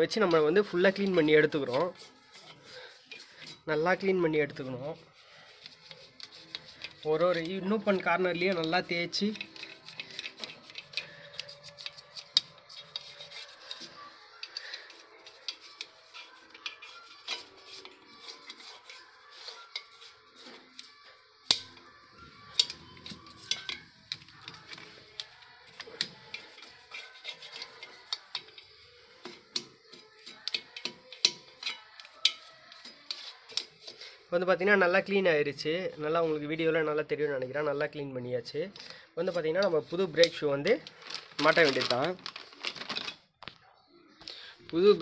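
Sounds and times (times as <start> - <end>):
toothbrush scrubbing metal: 0.0 - 34.2.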